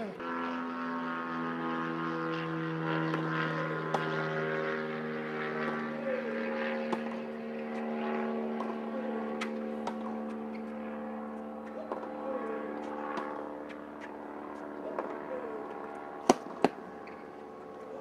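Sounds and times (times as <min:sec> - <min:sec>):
tennis ball hitting racket: 0:03.1 - 0:04.3, 0:05.2 - 0:17.4.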